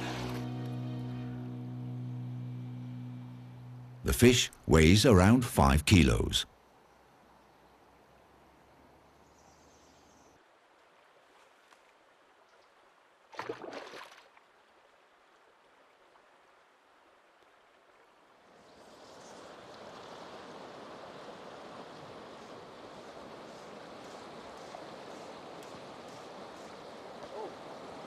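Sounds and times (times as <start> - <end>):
river water rushing: 0.0 - 4.9, 14.8 - 28.0.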